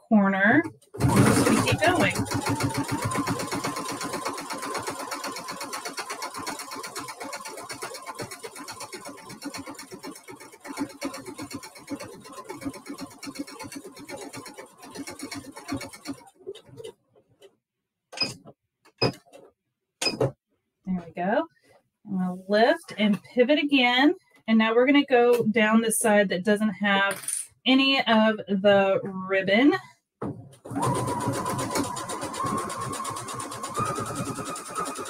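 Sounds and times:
sewing machine stitching: 0:00.4 - 0:16.9, 0:30.6 - 0:35.0.

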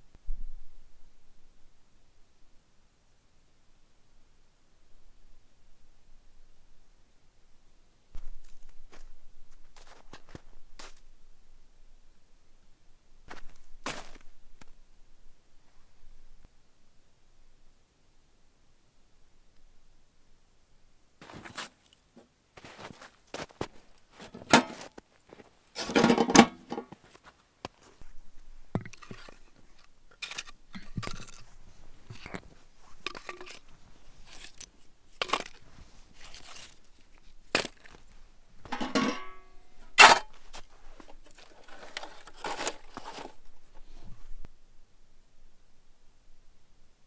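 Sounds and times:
boots crunching in snow: 0:08.2 - 0:11.0, 0:13.3 - 0:14.3, 0:21.2 - 0:21.8, 0:22.6 - 0:25.9.

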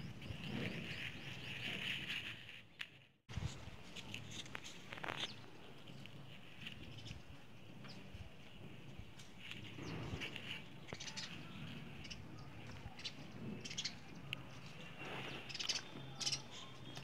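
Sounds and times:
birds chirping: 0:00.0 - 0:02.8, 0:05.0 - 0:17.0.

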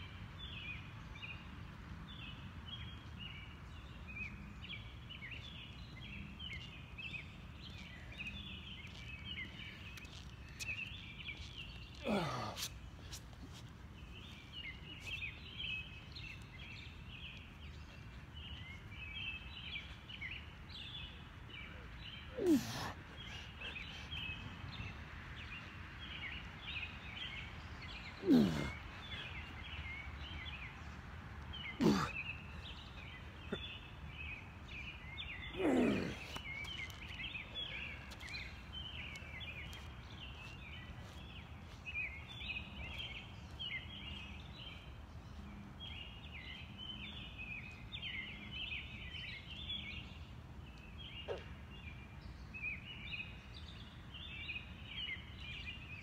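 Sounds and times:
man grunting exhales: 0:12.0 - 0:12.7, 0:22.4 - 0:23.0, 0:28.2 - 0:28.8, 0:31.8 - 0:32.2.

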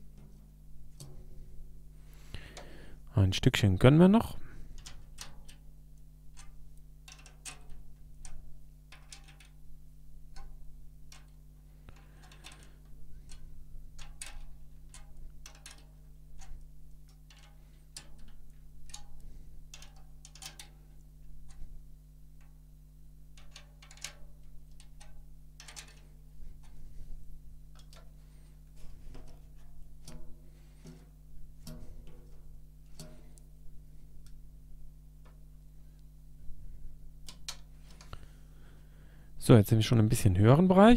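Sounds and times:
low steady hum: 0:00.0 - 0:40.9
drum key clicking on tension rods: 0:14.0 - 0:20.8.

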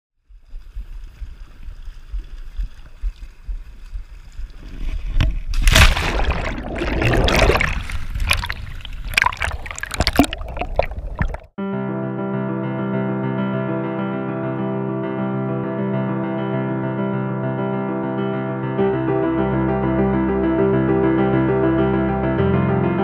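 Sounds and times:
underwater bubbling and gurgling: 0:00.2 - 0:11.5
low rumble of water: 0:00.2 - 0:11.6
loud splash: 0:04.5 - 0:11.5.

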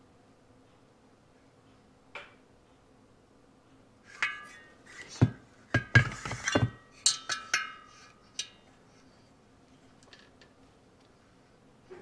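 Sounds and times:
metal clinks and knocks: 0:04.1 - 0:08.7.

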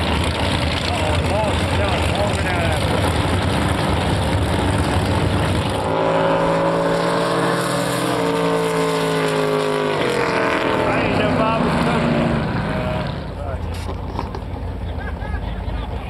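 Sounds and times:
boat engines high-revving drone: 0:00.0 - 0:16.0.

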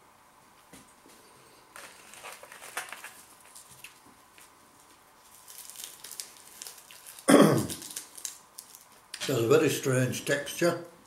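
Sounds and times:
crispy seaweed crackling: 0:01.8 - 0:09.2.

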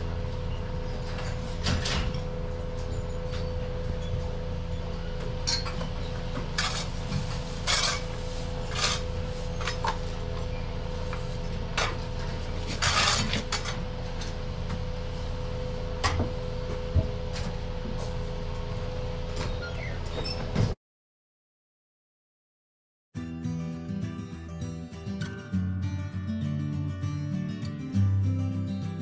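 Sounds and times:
low equipment hum: 0:00.0 - 0:20.8.

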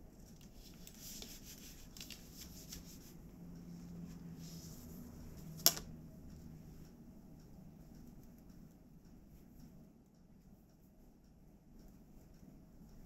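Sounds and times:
hands rustling bark fibre threads: 0:00.2 - 0:03.2.

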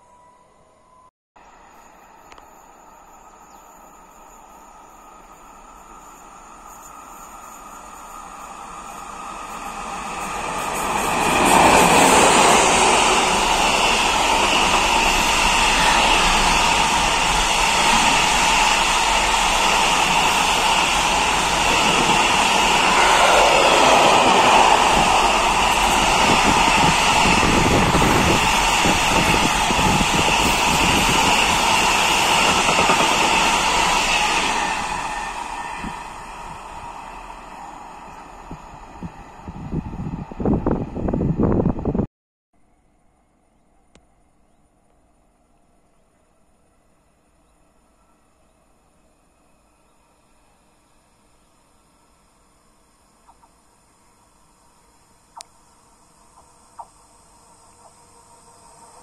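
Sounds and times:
freight train passing: 0:00.0 - 0:42.1, 0:57.2 - 0:59.0.

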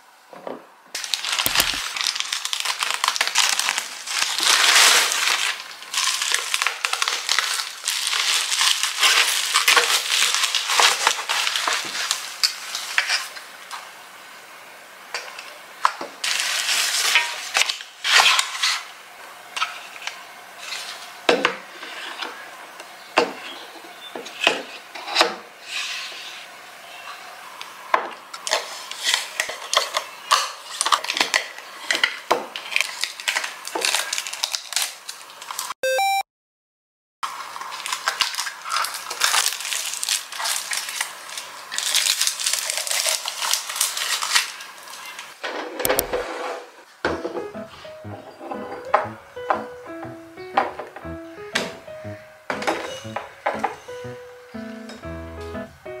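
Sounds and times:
plastic bag crinkling: 0:01.0 - 0:13.4, 0:16.2 - 0:18.6, 0:28.4 - 0:35.7, 0:37.3 - 0:45.4
protective film peeling: 0:01.0 - 0:13.4, 0:37.4 - 0:46.2.

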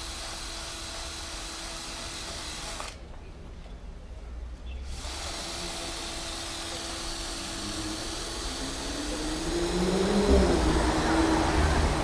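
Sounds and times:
passing vehicle engine: 0:07.6 - 0:12.0.

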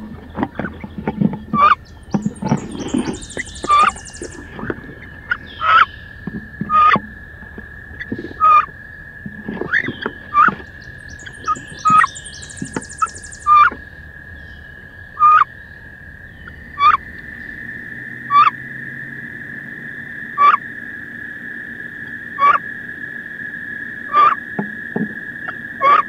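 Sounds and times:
duck hen calling: 0:01.5 - 0:06.0, 0:08.0 - 0:08.7, 0:09.7 - 0:13.8, 0:15.2 - 0:15.5, 0:16.8 - 0:17.0, 0:18.3 - 0:18.5, 0:20.4 - 0:20.6, 0:22.4 - 0:22.6, 0:24.1 - 0:24.4.

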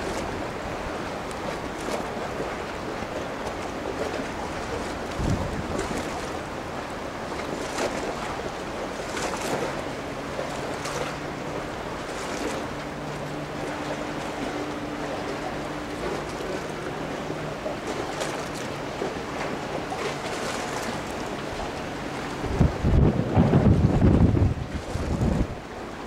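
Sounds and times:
low engine hum: 0:00.0 - 0:26.0
wind gusting on microphone: 0:05.0 - 0:06.2, 0:22.3 - 0:25.8.

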